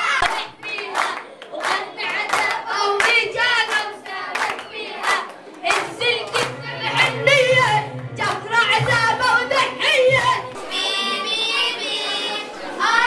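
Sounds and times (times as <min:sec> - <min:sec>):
children chanting: 0:00.0 - 0:13.0
hand claps: 0:00.2 - 0:06.8.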